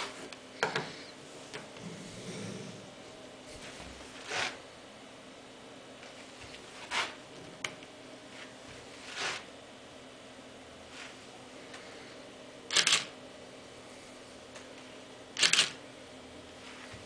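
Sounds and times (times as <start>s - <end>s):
camera shutter and mirror firing: 12.7s - 13.1s, 15.4s - 15.8s
sharp click: 12.7s - 13.1s, 15.4s - 15.8s.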